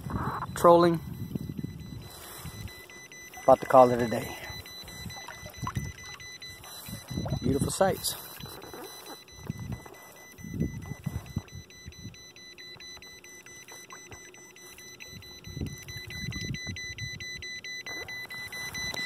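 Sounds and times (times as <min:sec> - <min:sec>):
wind on microphone: 0:00.0 - 0:02.8, 0:06.8 - 0:07.7, 0:09.4 - 0:12.2, 0:15.1 - 0:17.4
high electronic beeps: 0:00.0 - 0:19.0.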